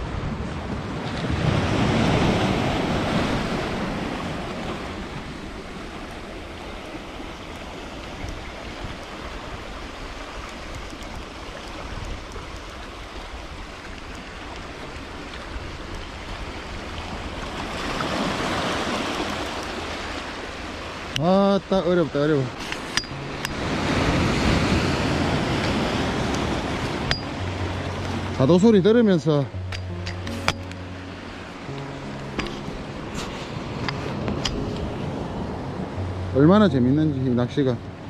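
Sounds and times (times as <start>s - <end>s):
waves washing over rocky shore: 0.0s - 30.4s.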